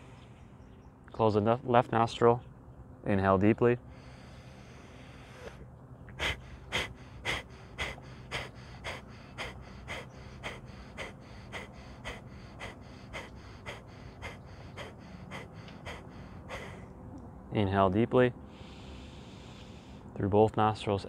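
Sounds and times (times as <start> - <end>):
man exhaling forcefully through nose: 6.2 - 16.9.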